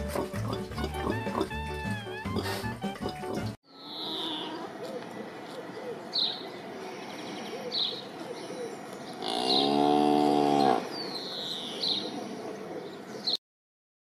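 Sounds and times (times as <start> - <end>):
cow mooing: 2.2 - 4.7, 9.2 - 10.9.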